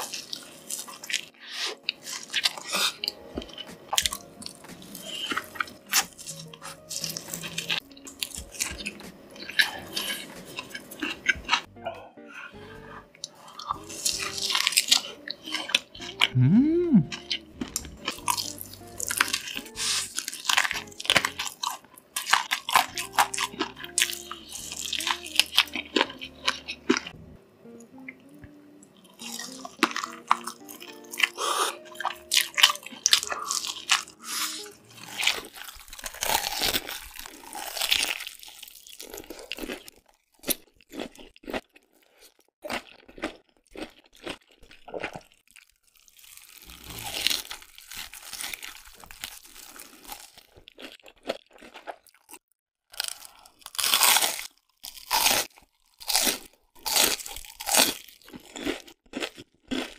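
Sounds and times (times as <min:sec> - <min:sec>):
crunching and chewing crispy food: 0:00.0 - 0:11.7, 0:13.2 - 0:16.4, 0:17.1 - 0:27.2, 0:29.0 - 0:59.9
soft background music: 0:00.0 - 0:38.2.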